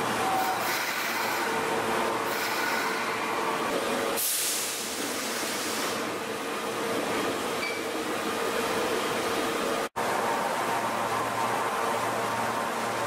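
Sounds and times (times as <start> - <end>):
air hiss: 4.2 - 6.1.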